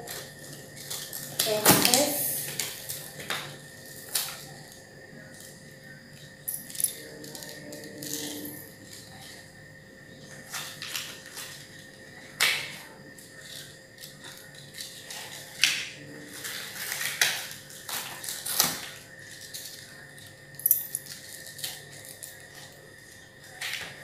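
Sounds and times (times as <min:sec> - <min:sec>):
plastic wrappers crinkling: 0:00.0 - 0:05.6, 0:13.2 - 0:20.3.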